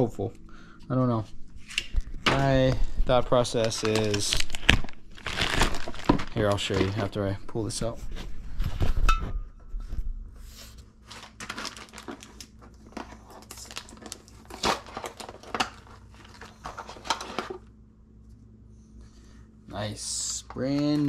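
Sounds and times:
plastic bag crackling: 0:03.1 - 0:07.2, 0:11.0 - 0:17.4.

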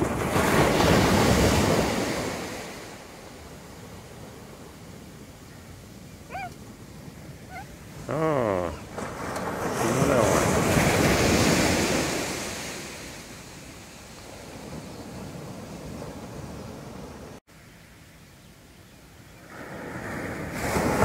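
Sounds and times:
ocean wave crashing on beach: 0:00.0 - 0:05.0, 0:07.5 - 0:17.4, 0:19.4 - 0:21.0.

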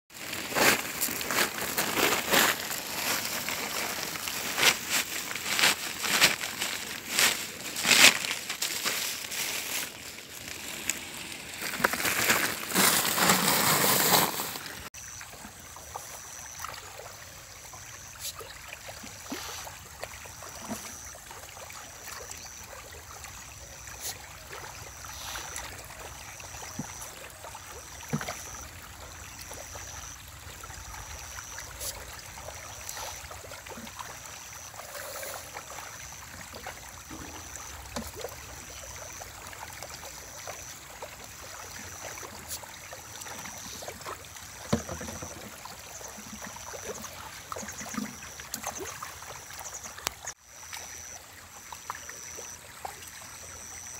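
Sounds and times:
plastic sack rustling and crinkling: 0:00.1 - 0:14.9
pond water sounds: 0:00.1 - 0:53.9.

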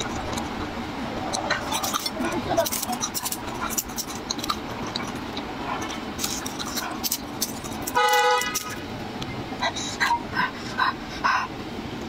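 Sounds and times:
garlic skins crackling: 0:00.0 - 0:08.8.

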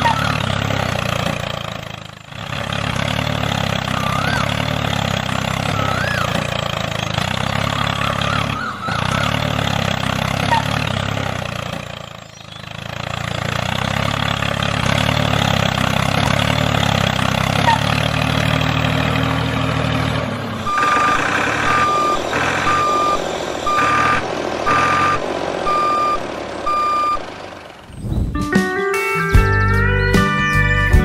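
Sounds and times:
vehicle engine running: 0:00.0 - 0:31.0
reversing alarm beeping: 0:20.6 - 0:27.3.

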